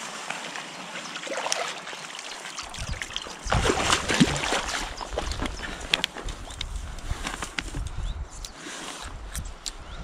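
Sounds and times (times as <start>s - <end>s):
water splashing around a net: 0.0s - 5.3s
river trickling: 0.0s - 6.2s.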